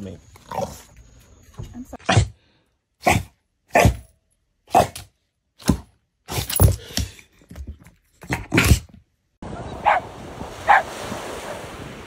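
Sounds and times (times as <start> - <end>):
dog barking: 9.8 - 10.9.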